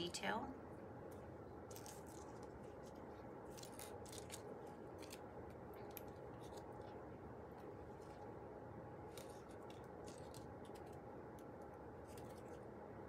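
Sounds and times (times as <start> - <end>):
low room hum: 0.0 - 13.0
paper rustling: 1.7 - 5.2, 9.0 - 11.0.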